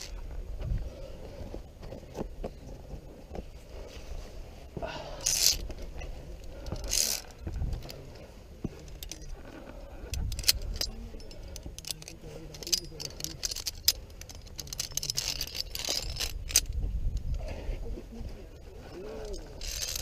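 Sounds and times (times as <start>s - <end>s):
carabiners clinking: 0.0s - 0.2s, 5.0s - 17.6s, 18.2s - 20.0s
carabiner scraping along cable: 0.0s - 2.3s, 5.1s - 20.0s.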